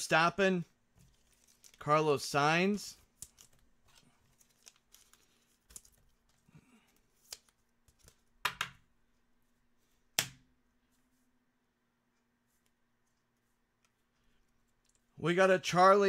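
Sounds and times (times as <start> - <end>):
cards rustling: 0.9 - 8.4.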